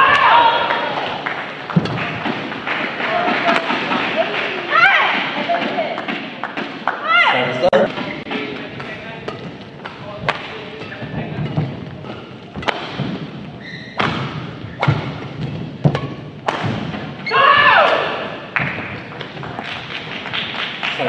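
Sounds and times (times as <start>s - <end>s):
badminton racket hitting shuttlecock: 1.8s - 6.8s, 7.9s - 18.4s.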